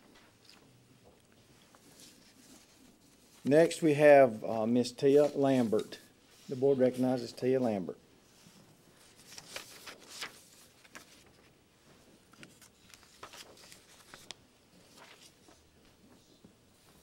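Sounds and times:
papers rustling: 9.0s - 17.0s.

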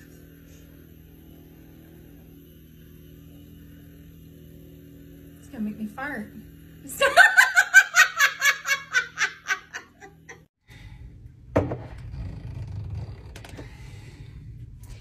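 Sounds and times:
woman laughing: 6.9s - 10.5s.

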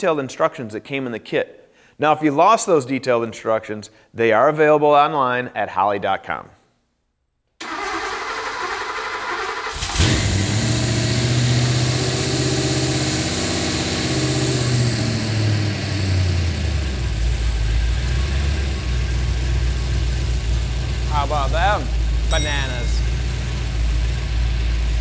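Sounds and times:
engine starter cranking: 7.6s - 10.4s
car engine idling: 15.9s - 25.0s.

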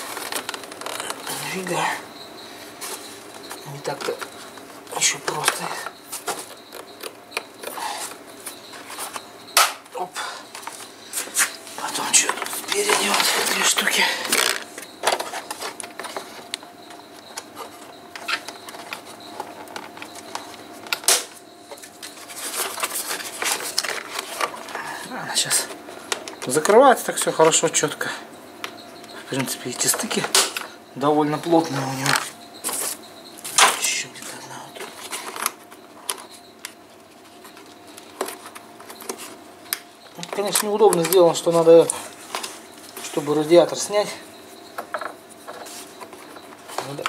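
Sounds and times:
faint steady hum: 0.0s - 47.0s
plastic parts clicking: 12.3s - 24.8s.

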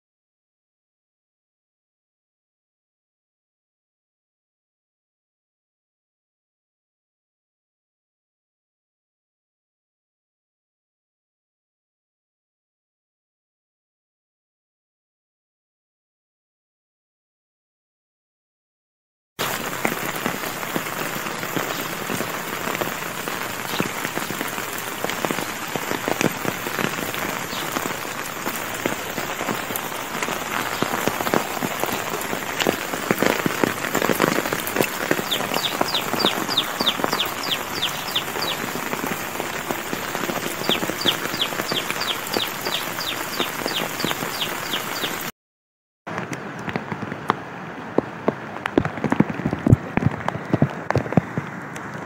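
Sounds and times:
heavy rain on wet ground: 19.4s - 45.3s, 46.1s - 52.0s
runoff water flowing: 19.4s - 45.3s.

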